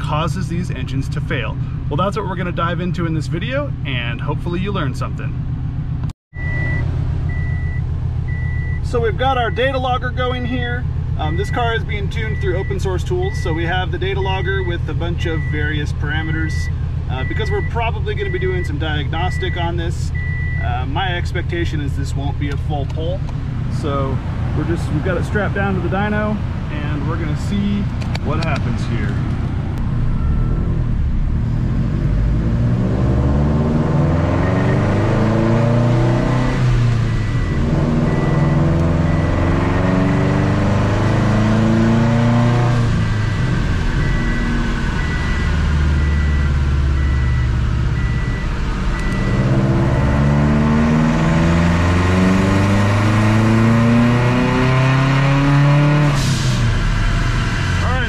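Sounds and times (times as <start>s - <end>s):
engine revving through gears: 23.2s - 58.0s.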